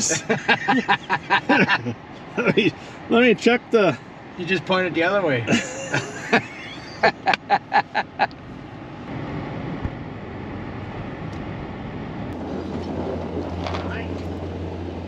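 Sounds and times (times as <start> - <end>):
truck road and engine rumble: 0.0 - 15.0.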